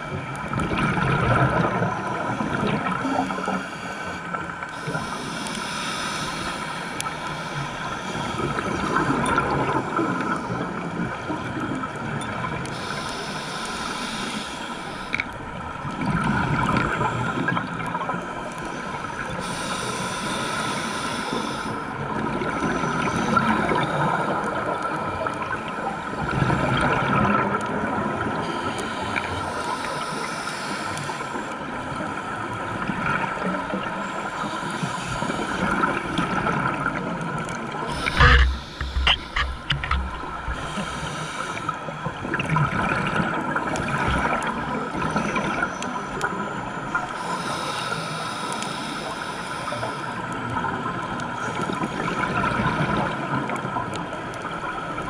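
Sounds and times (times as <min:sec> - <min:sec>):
exhaled bubbles rumbling: 0:00.4 - 0:03.2
regulator hissing inhalation: 0:04.8 - 0:08.4, 0:12.8 - 0:15.2, 0:19.4 - 0:21.8, 0:28.5 - 0:31.5, 0:37.9 - 0:41.8, 0:47.2 - 0:50.2.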